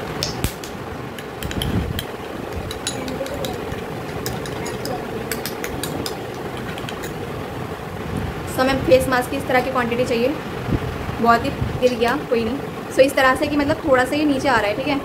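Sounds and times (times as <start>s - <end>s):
mechanical hum: 0.0s - 15.0s
spoon scraping glass bowl: 2.7s - 7.2s.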